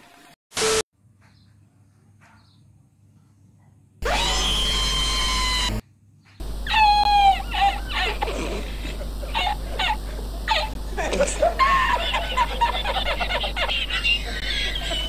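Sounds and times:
tv static burst: 4.0 - 5.8, 6.4 - 15.0
starling calling: 4.0 - 10.8.

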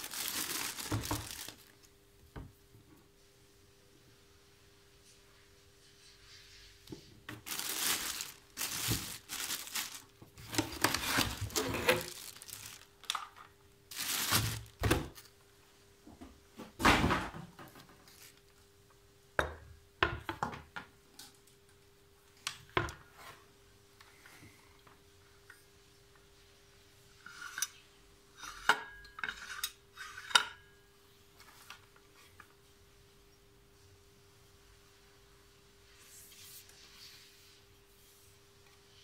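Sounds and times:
plastic wrapping rustling: 0.0 - 1.9, 7.3 - 15.3.

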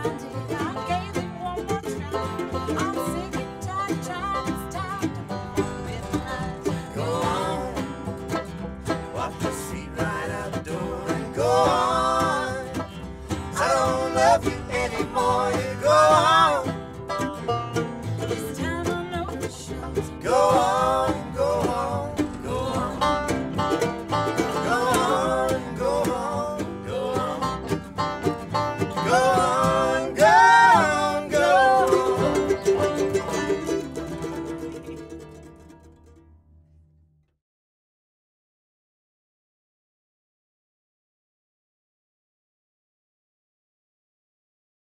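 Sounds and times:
bluegrass string band playing: 0.0 - 36.3.

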